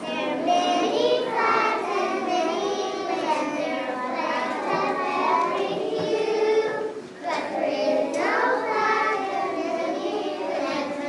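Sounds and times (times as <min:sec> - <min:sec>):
children singing in unison: 0:00.0 - 0:11.0.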